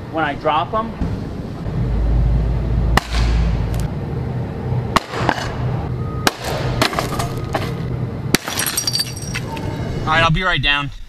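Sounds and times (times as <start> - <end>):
objects hitting concrete pavement: 6.4 - 9.5.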